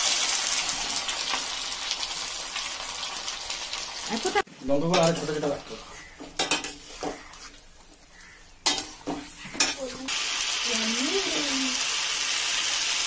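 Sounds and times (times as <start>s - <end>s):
spatula knocking and scraping pan: 6.0s - 7.6s, 8.6s - 10.1s
sizzling hiss: 8.2s - 13.0s.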